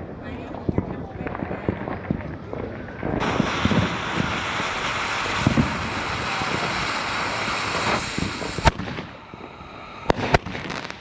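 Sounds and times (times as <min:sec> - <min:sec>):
firework bang: 0:03.0 - 0:11.0
firework hissing: 0:03.1 - 0:11.0
sharp pops: 0:03.2 - 0:11.0.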